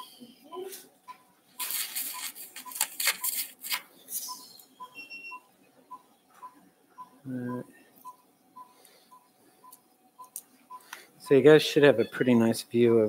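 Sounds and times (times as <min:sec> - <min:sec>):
monitor short beeps: 0:04.3 - 0:11.4.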